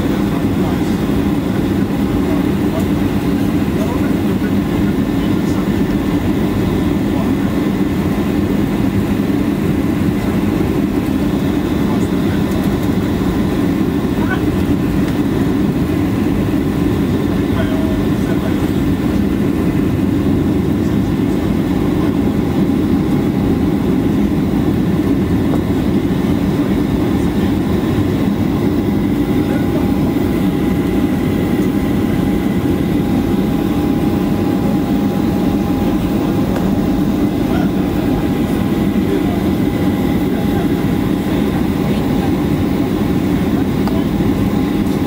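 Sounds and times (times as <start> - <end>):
airplane cabin engine rumble: 0.0 - 45.0.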